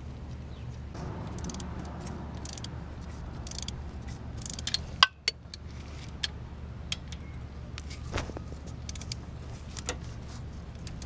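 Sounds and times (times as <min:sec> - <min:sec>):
steady low hum: 0:00.9 - 0:06.9.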